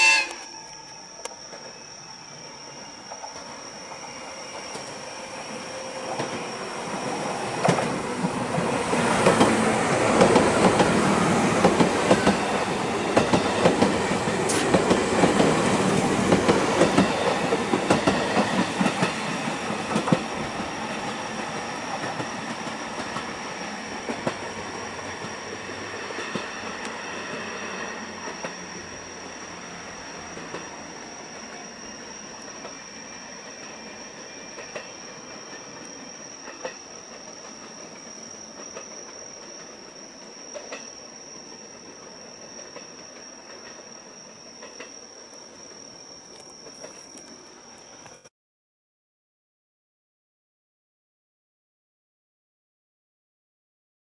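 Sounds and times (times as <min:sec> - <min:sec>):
train running noise: 0:00.0 - 0:48.2
train wheels clicking over rail joints: 0:07.4 - 0:21.2.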